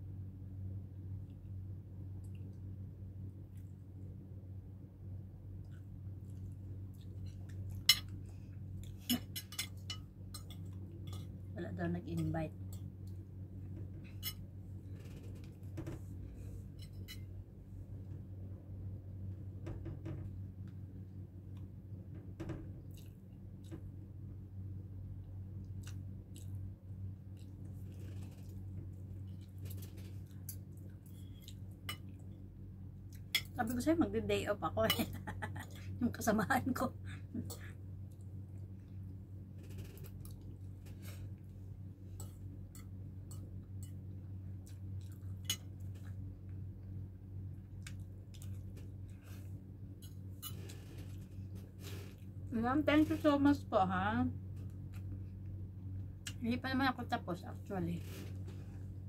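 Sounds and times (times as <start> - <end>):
low hum: 0.0 - 59.0
person chewing food: 22.9 - 23.8, 25.6 - 32.2, 40.0 - 46.6, 47.6 - 52.3.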